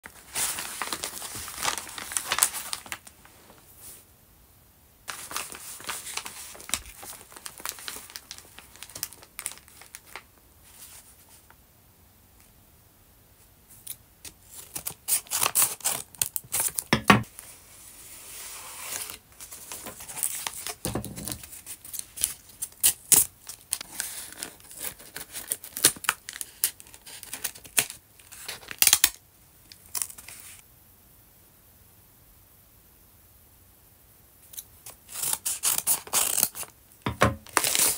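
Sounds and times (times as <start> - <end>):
paper rustling and crinkling: 0.0 - 4.0, 5.1 - 11.6, 14.3 - 17.6, 18.2 - 30.6, 34.9 - 37.9.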